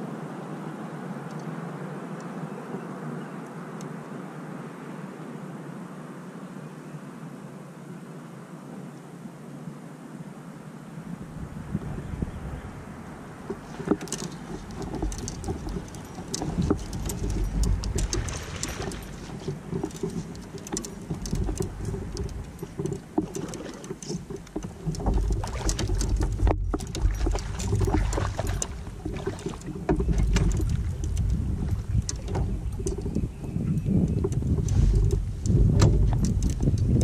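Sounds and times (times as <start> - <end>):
wind rumble on microphone: 11.0 - 37.0
clicks and knocks from fishing gear: 13.5 - 37.0.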